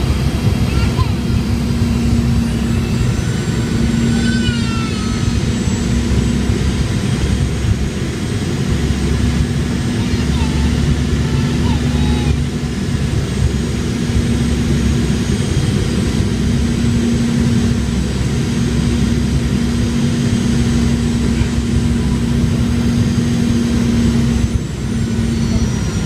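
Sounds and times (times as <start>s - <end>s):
airflow rushing in cabin: 0.0s - 26.0s
constant low hum: 0.0s - 26.0s
jet engines droning: 0.0s - 26.0s.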